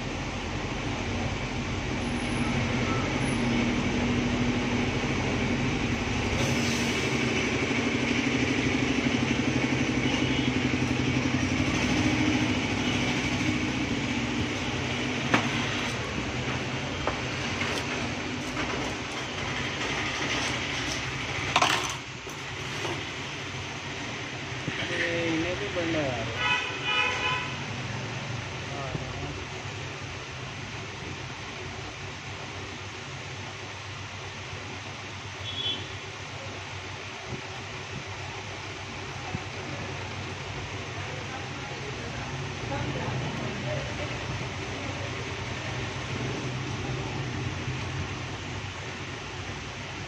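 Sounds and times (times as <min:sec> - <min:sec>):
engine hum: 0:00.0 - 0:25.1
road traffic rumble: 0:00.0 - 0:50.0.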